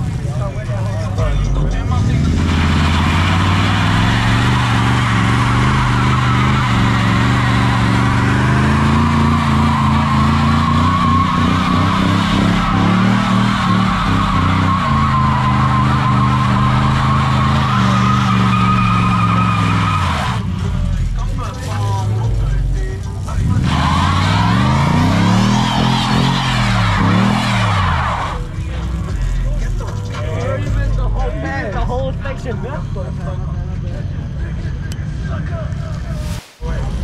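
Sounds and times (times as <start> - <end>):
tires squealing on pavement: 0.0 - 31.6
engine at high revs: 1.8 - 20.9, 23.2 - 28.5.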